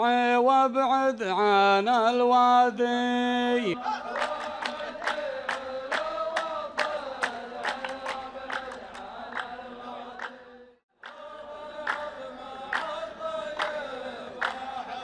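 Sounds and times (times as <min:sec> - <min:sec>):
male chorus chanting: 0:00.0 - 0:15.0
sharp hand claps: 0:04.2 - 0:14.8.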